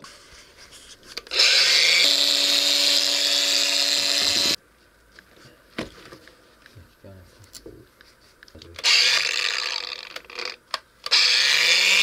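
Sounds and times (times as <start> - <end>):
angle grinder cutting floor: 1.3 - 4.6, 8.8 - 12.0.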